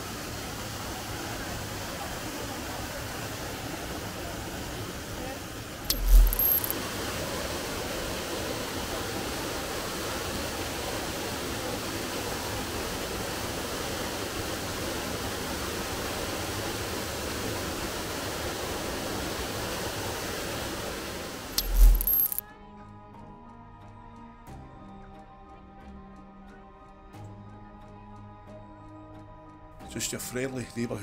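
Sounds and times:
rushing water: 0.0 - 5.9, 6.7 - 21.6.

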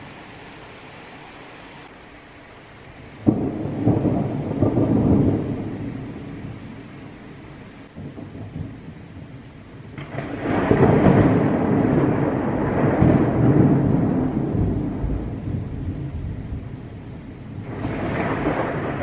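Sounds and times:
steady rain: 0.0 - 19.0
thunder rolling: 3.2 - 6.6, 7.9 - 16.9, 17.6 - 19.0.

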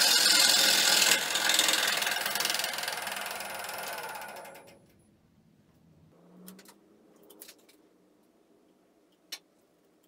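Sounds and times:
wood lathe cutting bowl: 0.0 - 4.7
rattling ticks of rim on tool: 0.0 - 5.0.

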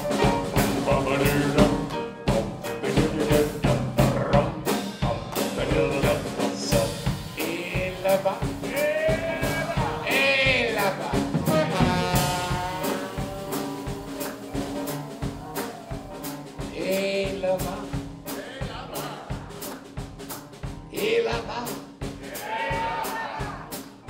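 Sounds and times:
drum kit beat: 0.0 - 24.0
man singing drawn-out notes: 0.8 - 18.0.

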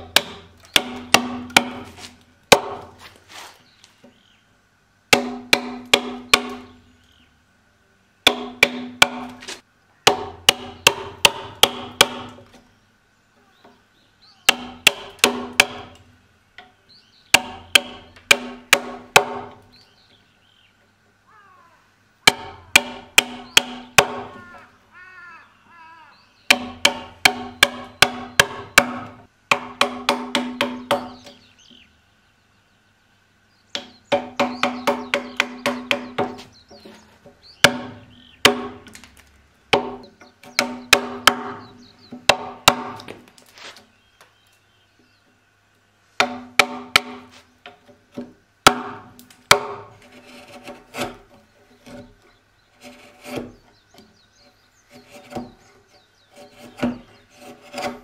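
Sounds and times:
hammer striking chisel: 0.0 - 1.9, 5.1 - 6.7, 8.3 - 9.4, 10.1 - 12.4, 14.5 - 16.0, 17.4 - 19.6, 22.2 - 24.3, 26.5 - 31.4, 37.6 - 39.0, 39.7 - 41.6, 46.2 - 47.3.

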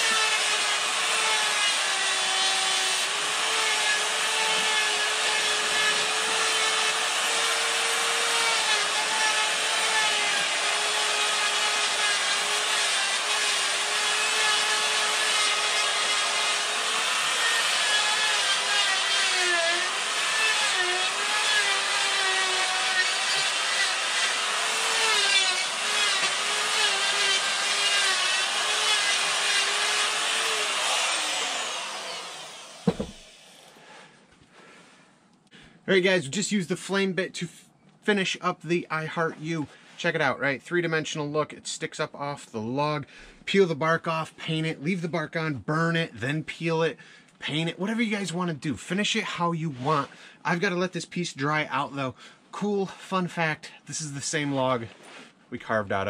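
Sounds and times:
die grinder grinding wood: 0.0 - 33.8.

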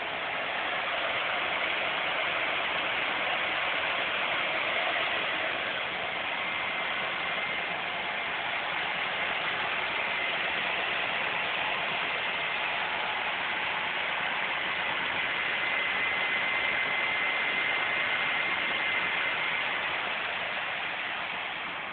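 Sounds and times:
engine idling: 0.0 - 21.9
faint high whine: 0.0 - 21.9.

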